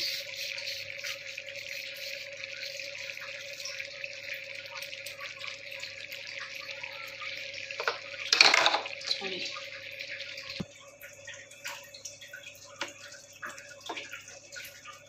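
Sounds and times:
gravy simmering in a pan: 0.0 - 8.4.

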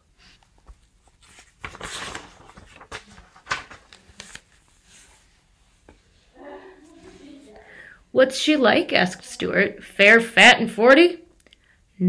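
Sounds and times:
book pages rustling: 0.1 - 6.2
paper flicking: 1.3 - 4.6.

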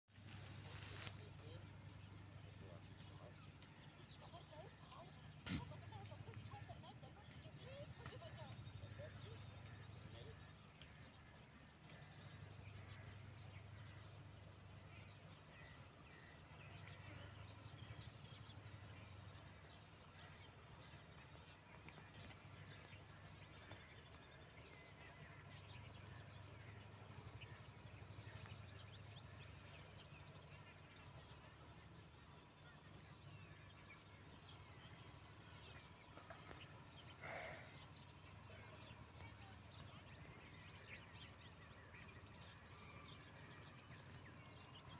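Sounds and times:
faint chirps: 0.1 - 44.9.

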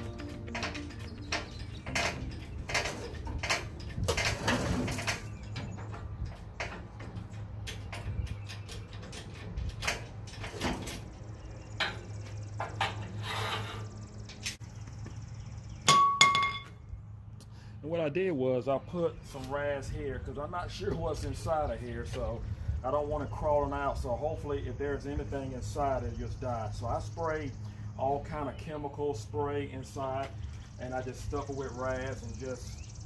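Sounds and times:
metal clicks and knocks: 0.0 - 13.2
steady low hum: 0.0 - 33.0
short metallic ring: 15.9 - 16.8.

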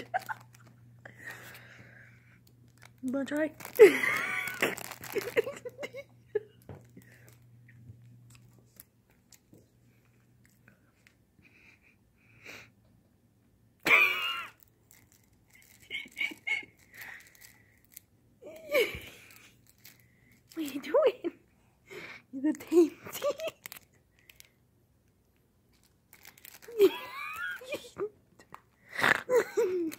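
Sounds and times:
plastic wrapper crinkling: 0.0 - 9.6, 14.3 - 21.1, 22.6 - 27.9.

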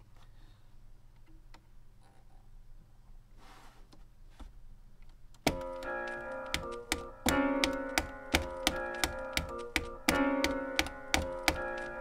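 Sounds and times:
sampled chord loop: 5.5 - 12.0.

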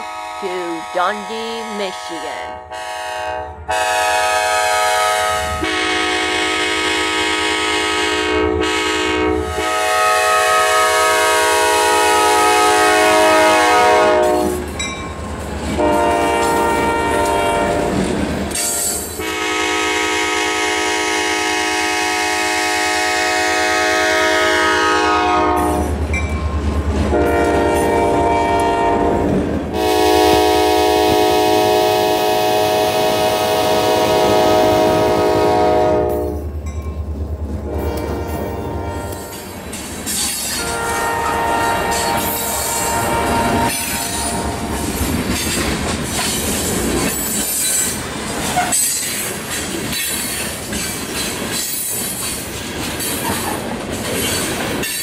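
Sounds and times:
locomotive air horn chord: 0.0 - 14.6, 15.8 - 17.9, 19.2 - 25.9, 27.1 - 29.2, 29.8 - 36.4, 37.7 - 39.4, 40.6 - 44.6
train rumbling on rails: 0.0 - 55.0.

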